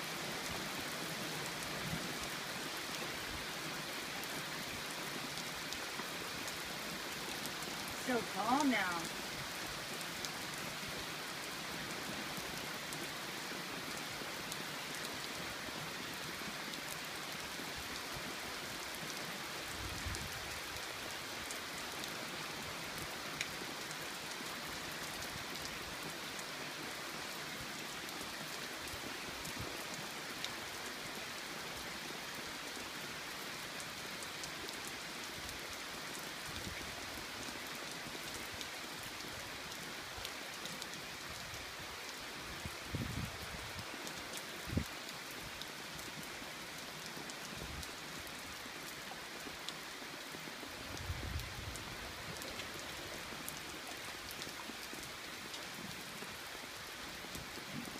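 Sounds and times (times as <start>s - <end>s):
raindrops ticking: 7.3s - 9.3s.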